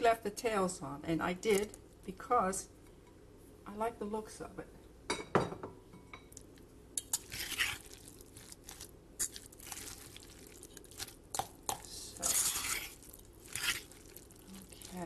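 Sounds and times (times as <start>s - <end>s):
utensil scraping metal bowl: 7.0s - 7.9s, 12.2s - 13.9s.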